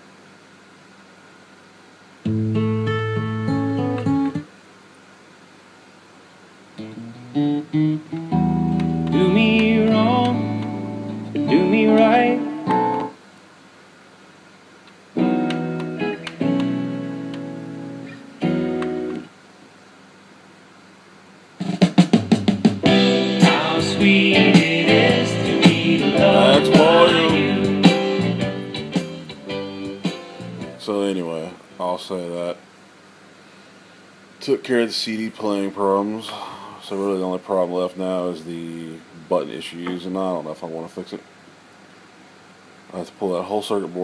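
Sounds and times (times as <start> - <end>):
guitar music with singing: 2.3 - 4.5, 6.8 - 13.2, 15.2 - 19.3, 22.8 - 30.9.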